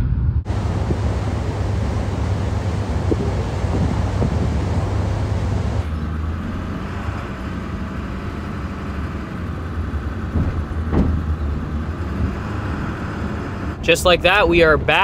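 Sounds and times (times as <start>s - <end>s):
wind buffeting microphone: 0.0s - 13.4s
diesel pickup truck driving: 0.4s - 15.0s
road noise: 0.4s - 15.0s.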